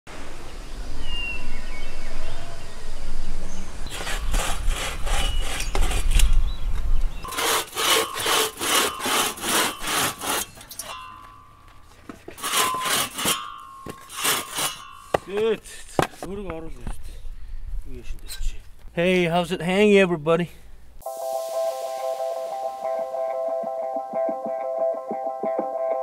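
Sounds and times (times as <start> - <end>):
hand saw cutting wood: 3.9 - 6.4, 7.2 - 11.0, 12.3 - 15.2.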